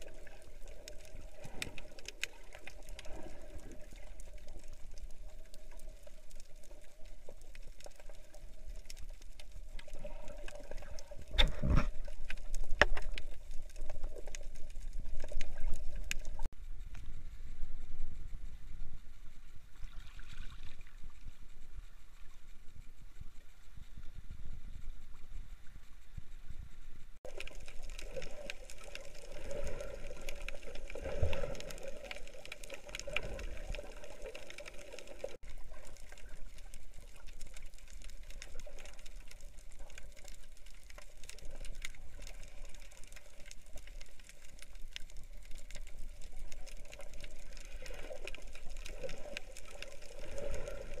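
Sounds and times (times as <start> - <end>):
crackle of fine clicks: 0.0 - 51.0
muffled underwater water rush: 0.0 - 51.0
water moving around camera: 0.0 - 51.0.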